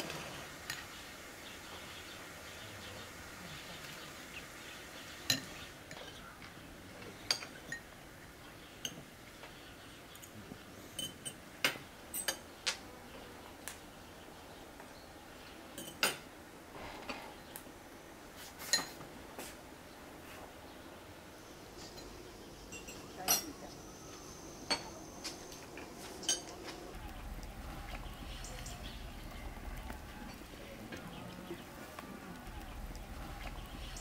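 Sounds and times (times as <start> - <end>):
cutlery clinking against glass: 7.3 - 7.9, 10.9 - 12.5, 15.8 - 16.2, 18.6 - 19.0, 21.9 - 23.6, 26.2 - 26.6.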